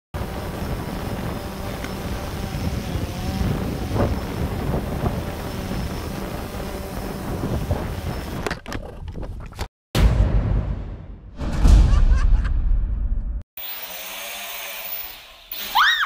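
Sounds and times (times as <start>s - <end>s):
wind on microphone: 0.2s - 9.6s.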